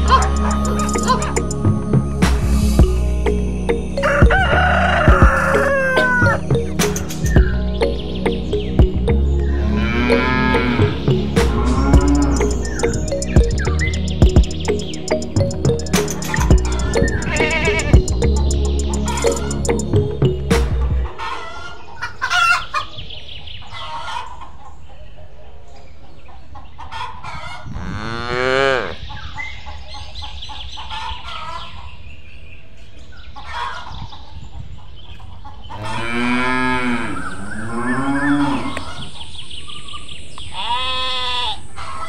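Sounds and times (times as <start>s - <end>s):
chickens clucking: 0.0s - 1.7s, 4.0s - 27.8s, 29.1s - 32.0s, 33.2s - 39.4s, 41.8s - 42.0s
small birds chirping: 0.0s - 4.2s, 5.0s - 20.4s, 28.6s - 42.0s
cows mooing: 9.5s - 12.9s, 16.7s - 18.1s, 27.7s - 29.0s, 35.8s - 39.2s.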